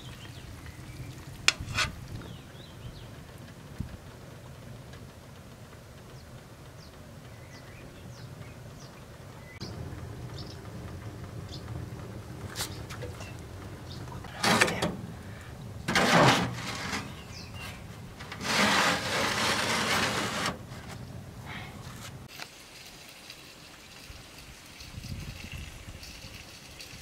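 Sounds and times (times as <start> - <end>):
metal pan scraping: 1.5 - 2.0, 14.3 - 15.1, 15.8 - 21.0.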